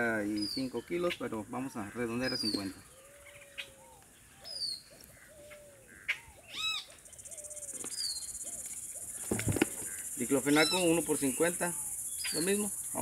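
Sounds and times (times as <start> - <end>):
birds cooing: 0.0 - 13.0
sharp bird call: 1.8 - 13.0
insect pulsing buzz: 6.6 - 13.0.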